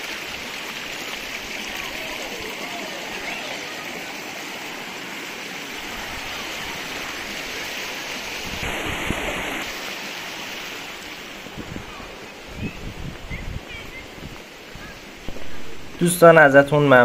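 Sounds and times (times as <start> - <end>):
stream running over rocks: 0.0 - 17.0
soft low thuds: 15.3 - 16.2.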